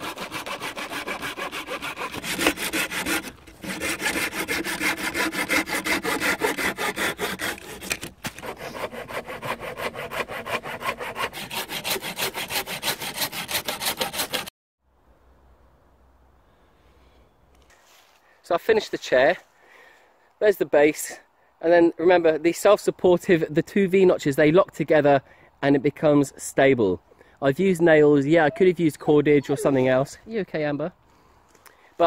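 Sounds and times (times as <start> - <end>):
hand saw cutting wood: 0.0 - 14.5.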